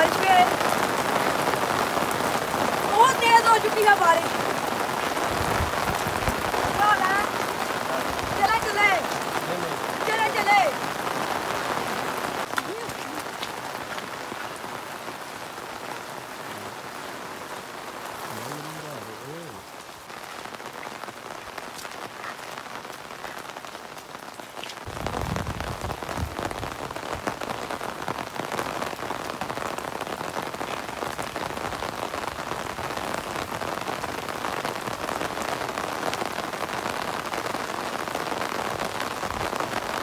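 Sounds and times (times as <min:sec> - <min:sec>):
heavy rain falling: 0:00.0 - 0:40.0.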